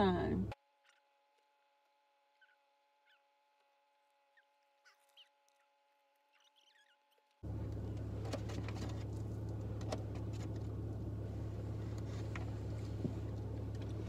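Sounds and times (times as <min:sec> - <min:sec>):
car engine hum inside cabin: 0:00.0 - 0:00.6, 0:07.4 - 0:14.0.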